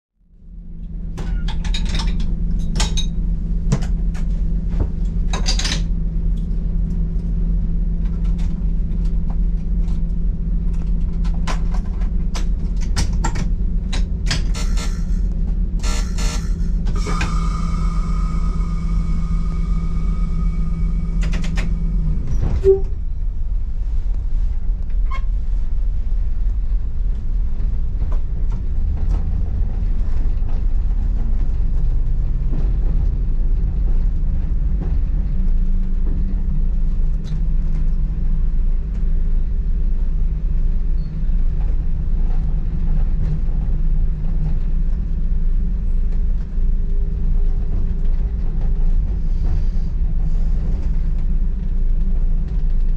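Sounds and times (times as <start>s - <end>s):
train engine and wheels rumbling: 0.2s - 52.9s
high-pitched tone: 14.4s - 23.0s.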